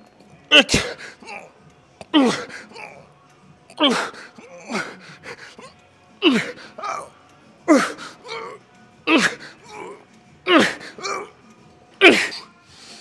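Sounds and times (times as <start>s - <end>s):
man groaning with effort: 0.5s - 1.5s, 2.1s - 3.1s, 3.8s - 7.1s, 7.7s - 11.4s, 12.0s - 12.4s
man breathing: 3.9s - 5.7s.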